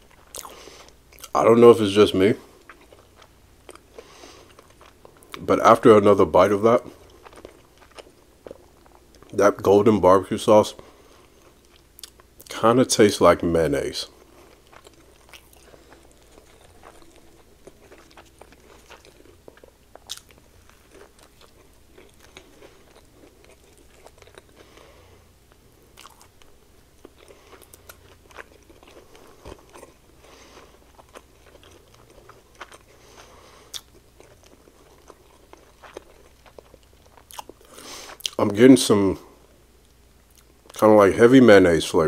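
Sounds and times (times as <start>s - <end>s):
wet chewing sounds: 6.8s - 9.4s, 14.2s - 24.8s, 25.9s - 38.4s
crunchy clicks of chewing: 14.5s - 24.7s, 30.6s - 38.4s.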